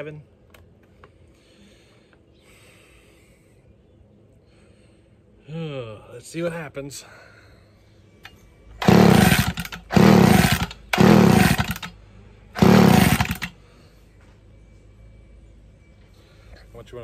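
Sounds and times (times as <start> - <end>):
chainsaw engine turning over: 8.8 - 12.0, 12.6 - 13.6.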